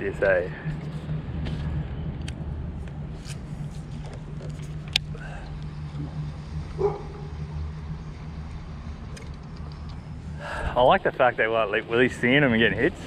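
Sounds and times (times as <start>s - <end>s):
electric trolling motor hum: 0.1s - 13.0s
dog bark: 6.8s - 7.4s.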